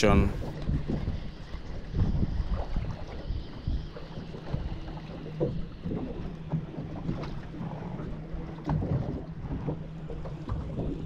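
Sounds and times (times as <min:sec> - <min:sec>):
wind buffeting microphone: 0:00.0 - 0:04.8
waves lapping against boat hull: 0:00.0 - 0:11.0.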